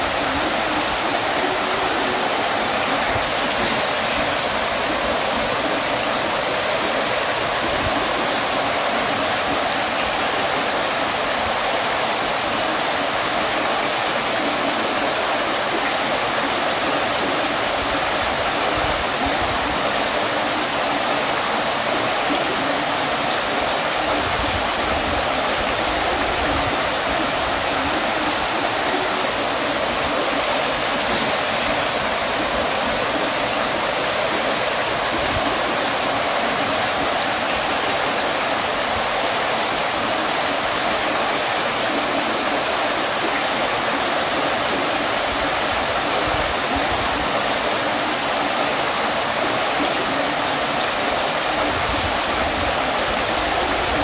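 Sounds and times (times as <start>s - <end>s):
fountain water splashing: 0.0s - 54.0s
high plink: 3.2s - 3.8s.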